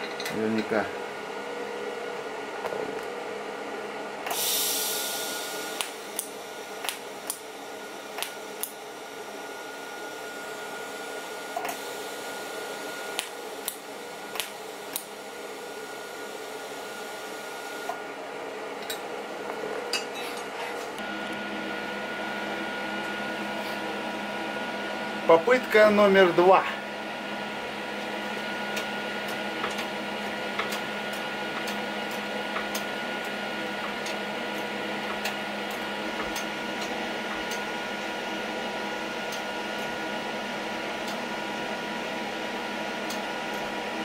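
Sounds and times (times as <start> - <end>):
low workshop hum: 0.0 - 44.0
welding arc hissing: 4.3 - 8.7.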